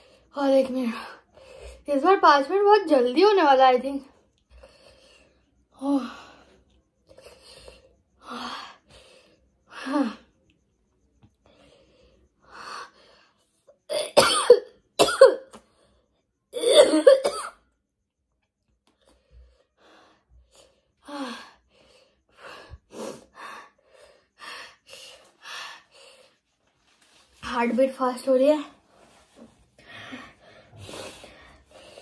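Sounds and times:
person coughing: 13.9 - 15.5, 16.6 - 17.6.

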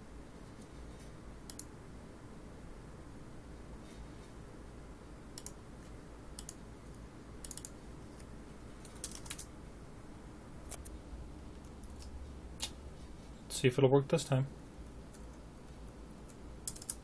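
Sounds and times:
faint low hum: 0.0 - 17.0
computer mouse clicks: 1.4 - 1.7, 5.3 - 5.6, 6.4 - 6.6, 7.4 - 9.5, 16.1 - 17.0.

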